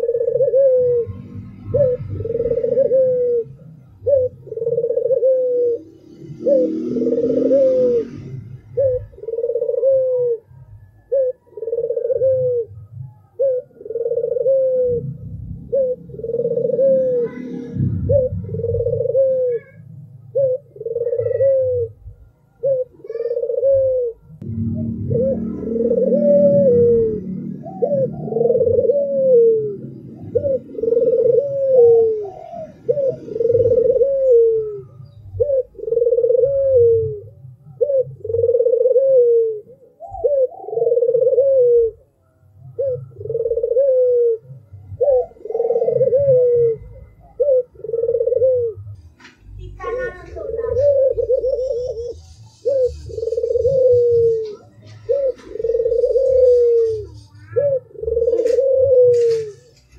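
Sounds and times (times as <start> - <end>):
dove cooing: 0.0 - 59.9.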